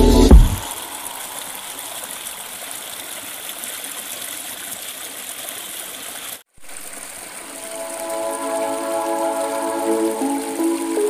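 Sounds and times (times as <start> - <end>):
soft music: 0.0 - 0.6, 7.5 - 11.0
stream rushing over stones: 0.5 - 11.0.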